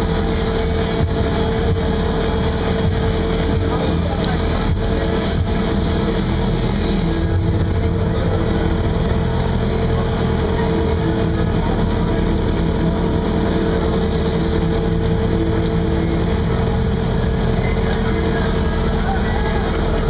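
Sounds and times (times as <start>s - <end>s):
boat engine idling: 0.0s - 20.0s.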